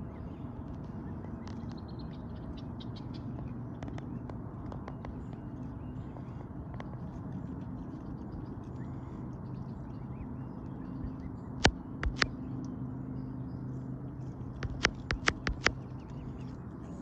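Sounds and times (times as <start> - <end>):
steady low hum: 0.0 - 17.0
swan bills clicking on rock: 12.0 - 12.3, 14.6 - 15.8.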